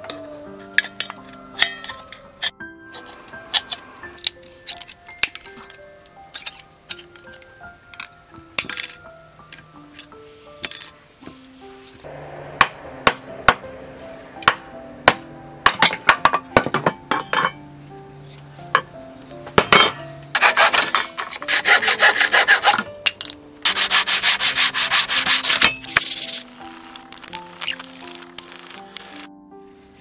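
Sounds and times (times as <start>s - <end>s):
soft background music: 0.0s - 30.0s
wood rubbed on sandpaper: 20.4s - 20.8s, 21.5s - 22.8s, 23.7s - 25.6s.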